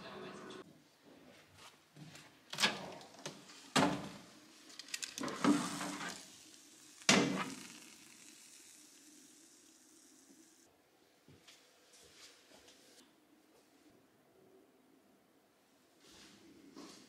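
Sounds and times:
sizzling hiss: 0:03.5 - 0:10.7.

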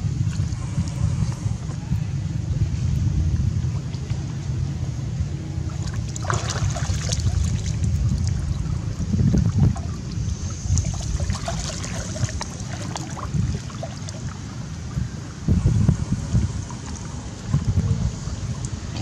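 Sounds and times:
wind rumble on microphone: 0:00.0 - 0:19.0
water splashing and dripping: 0:05.6 - 0:15.0.

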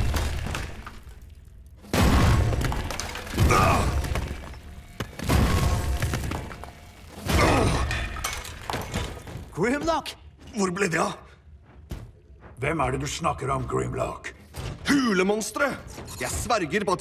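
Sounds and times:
rocks breaking and falling: 0:00.0 - 0:10.0
background music: 0:00.0 - 0:17.0.

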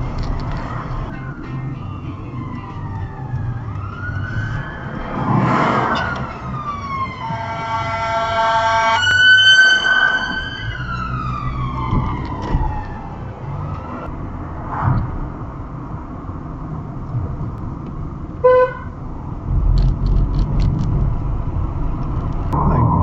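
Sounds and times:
car running noise: 0:00.0 - 0:23.0
emergency siren wailing: 0:01.0 - 0:14.1.

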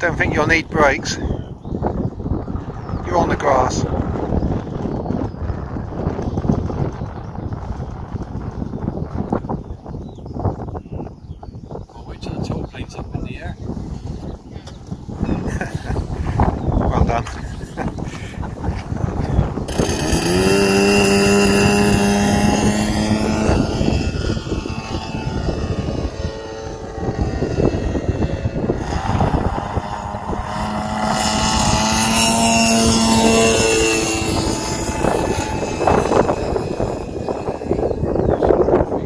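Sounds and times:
model plane engine buzzing: 0:12.7 - 0:39.0.

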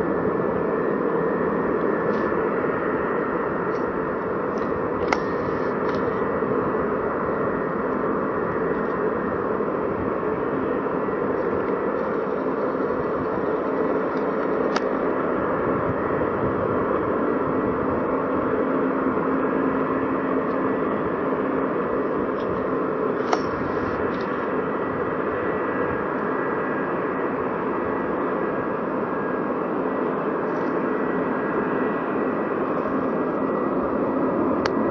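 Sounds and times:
jet engines running: 0:00.0 - 0:34.9
sharp click: 0:23.3 - 0:23.5.

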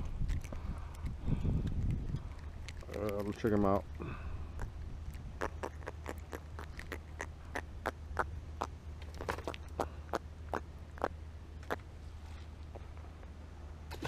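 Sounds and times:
wind rumble on microphone: 0:00.0 - 0:07.0.

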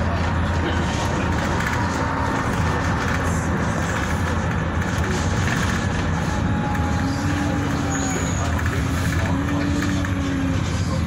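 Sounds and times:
bus engine rumble: 0:00.0 - 0:11.0
road noise: 0:00.0 - 0:11.0.

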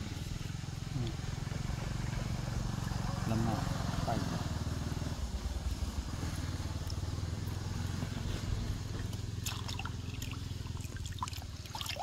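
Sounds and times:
engine hum: 0:00.0 - 0:12.0
water dripping and splashing: 0:09.0 - 0:12.0.

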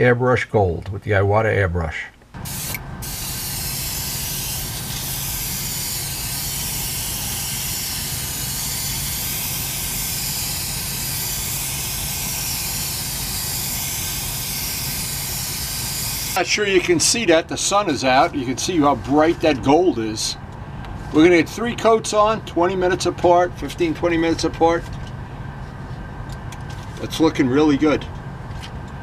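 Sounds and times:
low steady hum: 0:00.0 - 0:29.0
airbrush hissing compressed air: 0:02.4 - 0:16.4.

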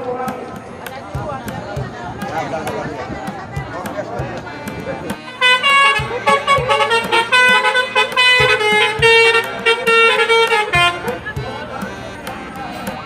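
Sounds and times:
multi-tone musical horn: 0:05.3 - 0:11.2.

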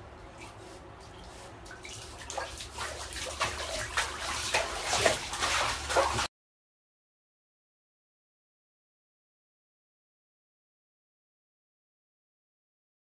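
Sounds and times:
water splashing in bathtub: 0:00.4 - 0:06.3.

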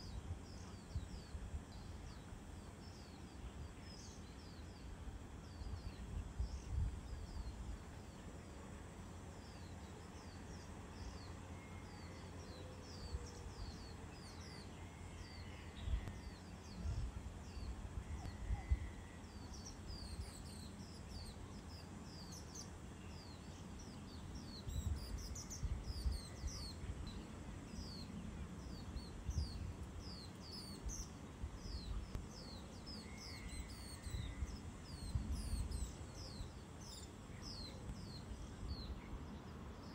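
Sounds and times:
wind rumbling on microphone: 0:00.0 - 0:08.2, 0:15.3 - 0:21.3, 0:24.1 - 0:39.9
small birds chirping: 0:00.0 - 0:39.9.

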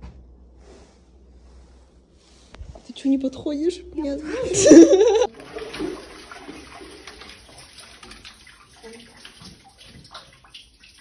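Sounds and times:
water splashing and dripping: 0:05.3 - 0:11.0.

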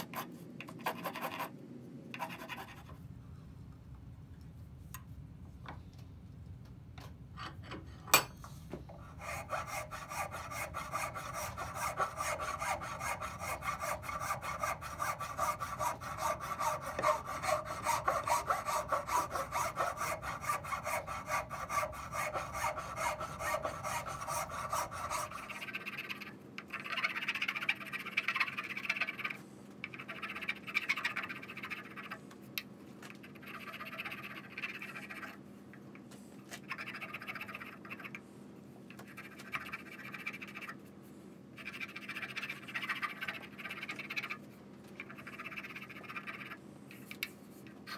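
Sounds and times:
scraping wooden mallet head: 0:00.0 - 0:01.6, 0:09.0 - 0:32.2
file rasping wood: 0:09.0 - 0:26.0.

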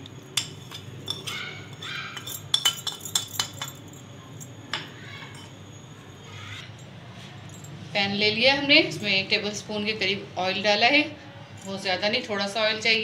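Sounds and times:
spoon clinking on a ceramic plate: 0:00.4 - 0:05.6.

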